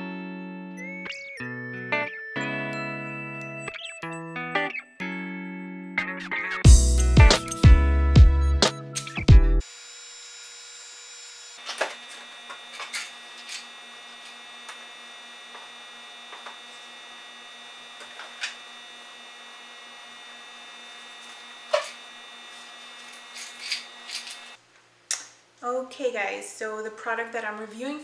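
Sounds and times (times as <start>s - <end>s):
electrical appliance hum: 9.6s - 25.2s
household items being handled: 11.6s - 17.0s, 17.9s - 18.8s, 20.9s - 24.6s.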